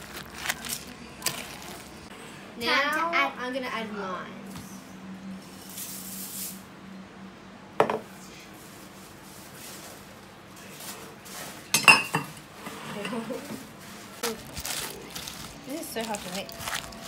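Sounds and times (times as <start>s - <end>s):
cornflakes rustling into bowl: 0.0s - 2.1s, 14.2s - 17.0s
dishes clattering: 11.7s - 13.6s
spatula stirring cookie dough: 15.0s - 17.0s.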